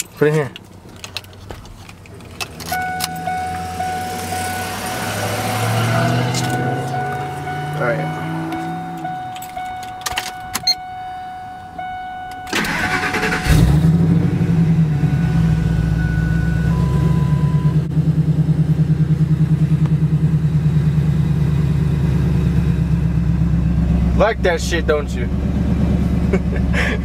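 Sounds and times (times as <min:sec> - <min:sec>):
starter motor cranking: 0:12.5 - 0:13.8.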